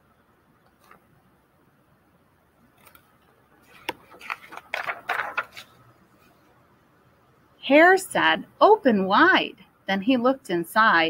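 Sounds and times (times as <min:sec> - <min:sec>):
paper page being turned: 0:02.8 - 0:06.4.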